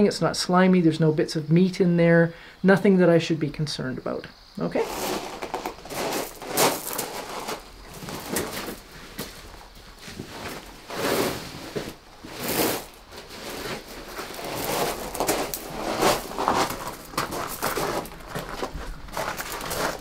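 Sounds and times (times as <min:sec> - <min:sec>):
person moving on gravel: 0:04.7 - 0:20.0.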